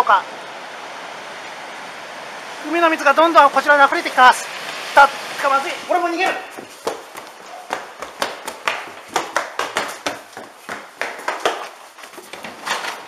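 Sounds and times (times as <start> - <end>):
running footsteps: 5.6 - 13.0.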